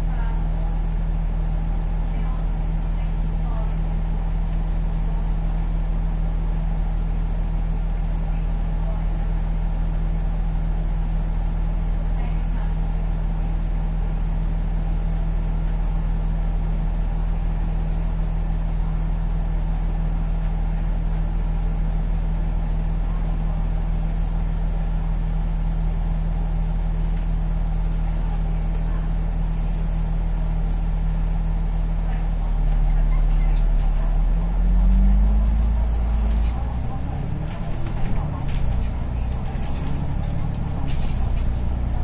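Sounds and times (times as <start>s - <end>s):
bus engine idling: 0.0s - 42.0s
bus engine revving pulling away: 32.5s - 42.0s.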